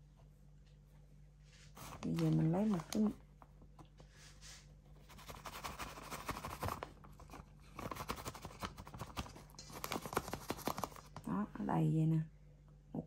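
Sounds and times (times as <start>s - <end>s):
plastic bag crinkling: 1.8s - 3.2s.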